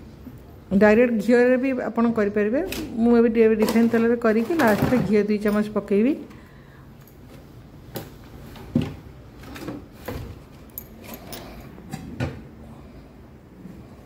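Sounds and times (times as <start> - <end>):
kitchen items knocking: 3.5 - 5.8.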